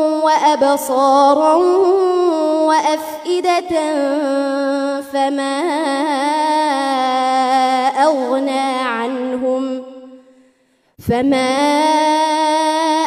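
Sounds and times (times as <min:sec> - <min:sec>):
woman reciting in melodic chant: 0:00.0 - 0:13.0.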